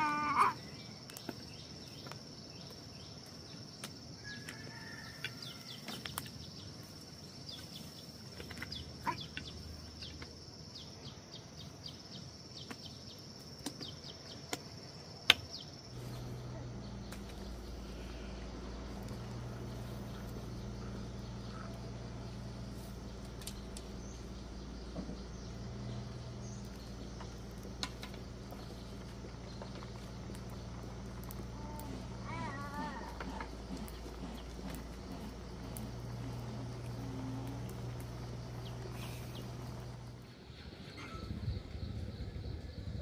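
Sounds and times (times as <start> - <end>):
insect drone: 0.0 - 43.0
low steady hum: 5.1 - 43.0
small clicks and knocks: 26.6 - 32.0.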